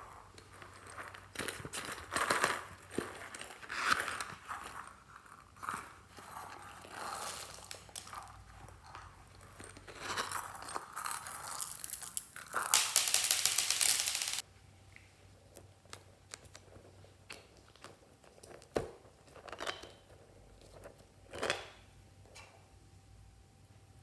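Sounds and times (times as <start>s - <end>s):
foam toy crinkling and tearing: 0.6s - 8.5s, 9.9s - 14.4s.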